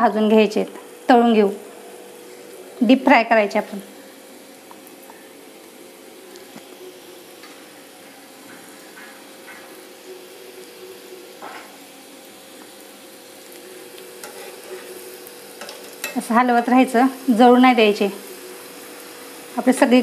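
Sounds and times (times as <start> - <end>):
oil sizzling while deep-frying: 0.0 - 20.0.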